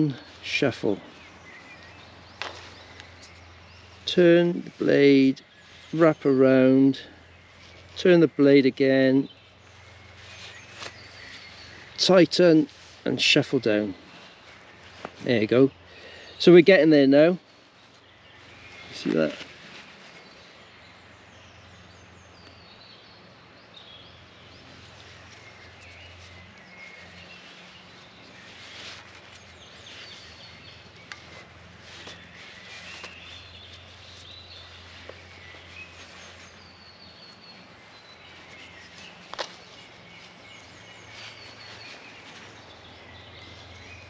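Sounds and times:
birds chirping: 0:00.0 - 0:44.0
cord rustling and clicking: 0:30.9 - 0:36.6, 0:38.3 - 0:40.4.

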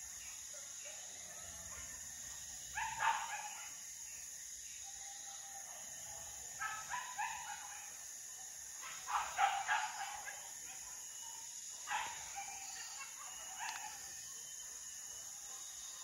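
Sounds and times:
dogs barking: 0:00.6 - 0:03.9, 0:05.6 - 0:08.1, 0:08.8 - 0:14.3.

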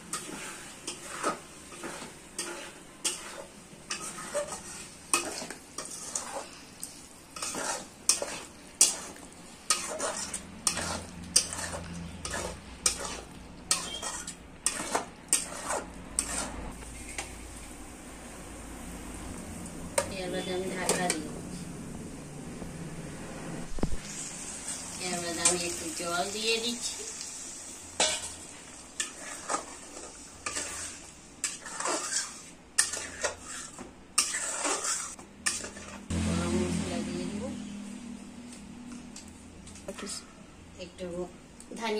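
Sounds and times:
spoon scraping metal pan: 0:00.0 - 0:17.3, 0:28.0 - 0:36.1
light sizzle: 0:00.0 - 0:41.9.

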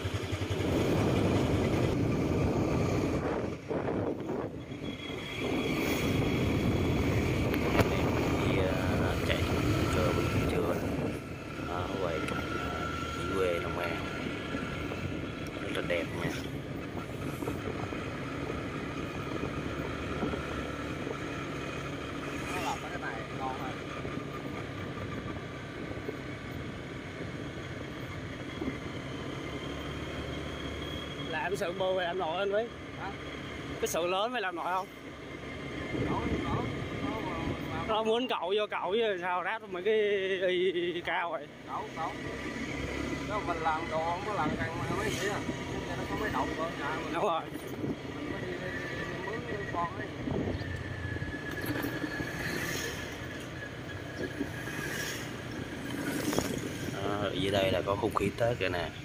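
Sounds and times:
motorbike engine running: 0:00.0 - 0:31.4
wind: 0:00.0 - 0:59.0
tyre noise on road: 0:41.1 - 0:59.0.

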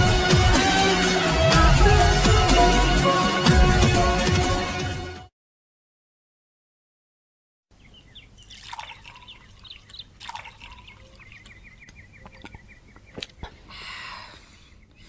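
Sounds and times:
birds chirping: 0:07.7 - 0:15.0
liquor pouring into glass: 0:08.5 - 0:09.3.

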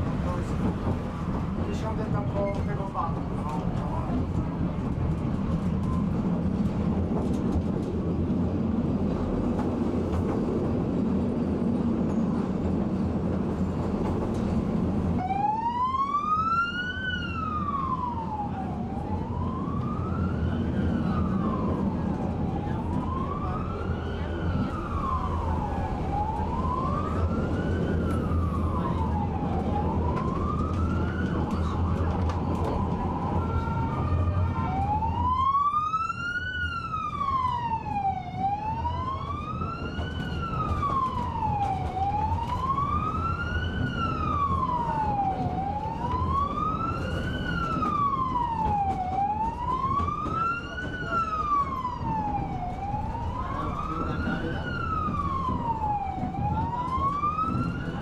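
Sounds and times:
emergency siren wailing: 0:15.0 - 0:58.0.

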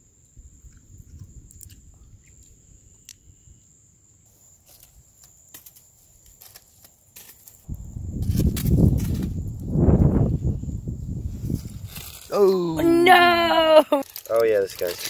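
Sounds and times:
high insect trill: 0:00.0 - 0:15.0
aluminium foil crinkling: 0:04.7 - 0:09.4, 0:11.6 - 0:15.0.

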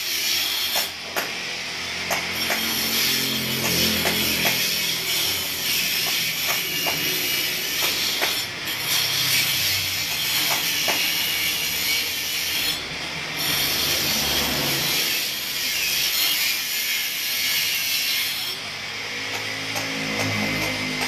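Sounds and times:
power tool grinding concrete: 0:00.0 - 0:21.0.

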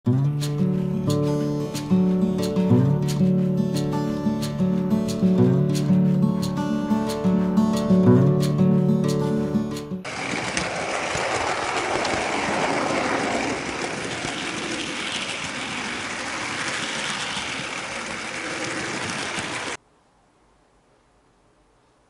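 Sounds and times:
model train running on track: 0:10.1 - 0:19.8.

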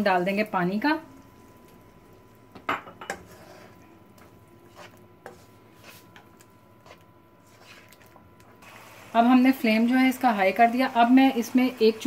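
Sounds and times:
spatula scraping a wok: 0:03.0 - 0:08.0.

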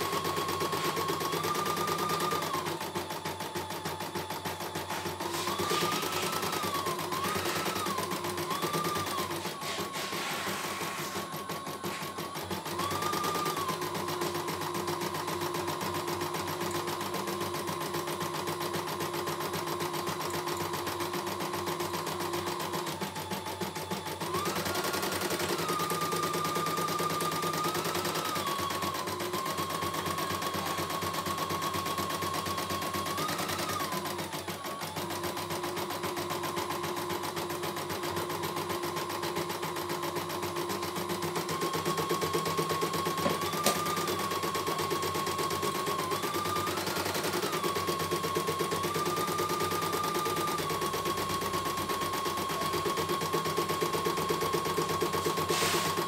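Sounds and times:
embroidery machine stitching: 0:00.0 - 0:56.0.

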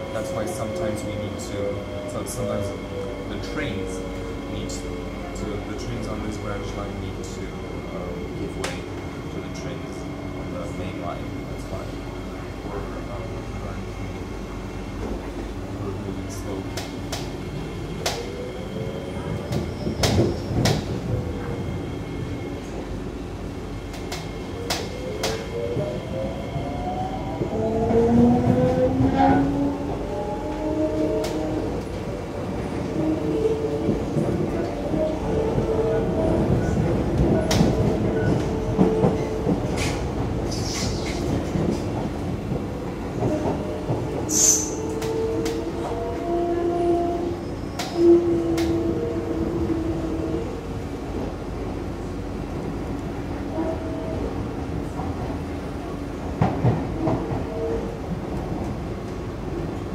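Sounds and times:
train wheels rumbling on rail: 0:00.0 - 0:59.9
rail clicks: 0:16.6 - 0:17.4, 0:18.0 - 0:18.4, 0:19.2 - 0:21.6, 0:23.8 - 0:46.3, 0:47.8 - 0:49.1.

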